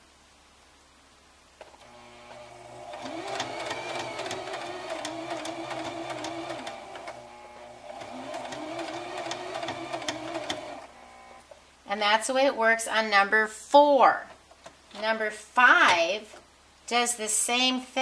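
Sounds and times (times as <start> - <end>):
sewing machine stitching: 1.8 - 11.4.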